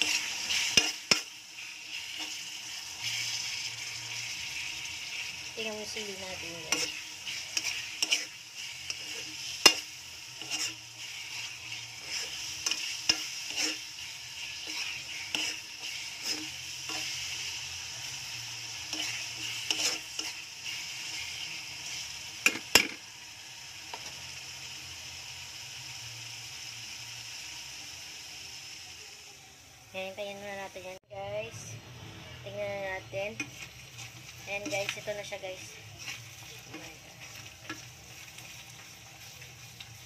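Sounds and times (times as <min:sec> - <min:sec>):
spatula scraping a wok: 0:00.0 - 0:22.9, 0:32.5 - 0:40.0
food sizzling in oil: 0:00.0 - 0:31.8, 0:32.4 - 0:40.0.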